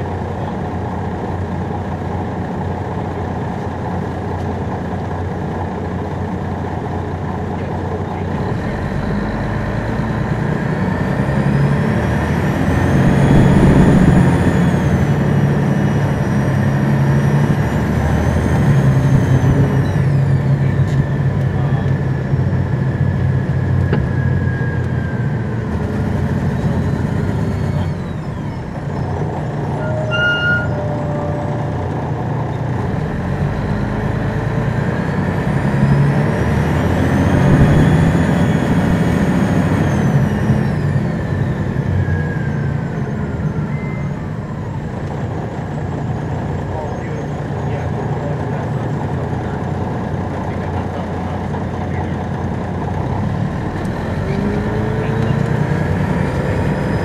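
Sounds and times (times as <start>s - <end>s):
bus engine whining through gears: 0.0s - 57.0s
brief electronic tone: 12.8s - 15.0s, 29.6s - 31.9s, 37.3s - 39.1s.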